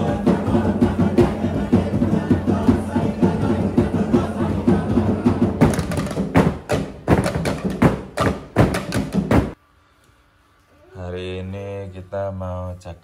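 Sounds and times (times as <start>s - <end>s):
dance music with drumming: 0.0s - 9.6s
bamboo poles knocking on floor: 5.6s - 9.6s.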